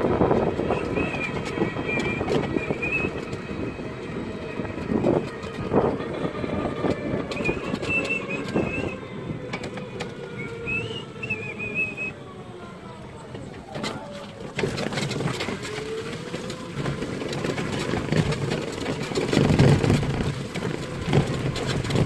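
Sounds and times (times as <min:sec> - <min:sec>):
vehicle rumbling on rough road: 0:00.0 - 0:22.0
short high squeaks: 0:07.3 - 0:09.0
vehicle body rattles and knocks: 0:13.4 - 0:22.0.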